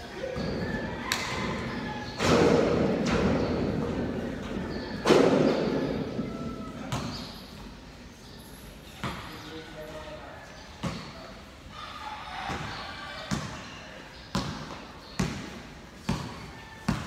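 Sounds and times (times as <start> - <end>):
basketball bouncing on concrete: 13.3 - 13.6, 14.3 - 17.0.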